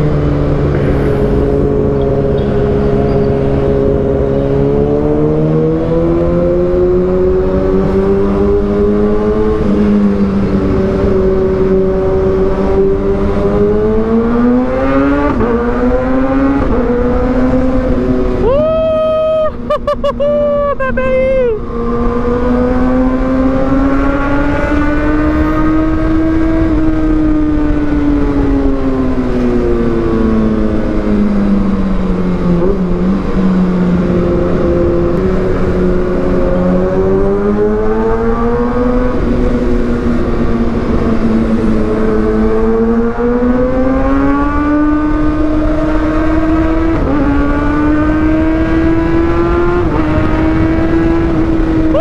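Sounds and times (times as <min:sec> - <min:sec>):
motorcycle exhaust note: 0:00.0 - 0:04.4.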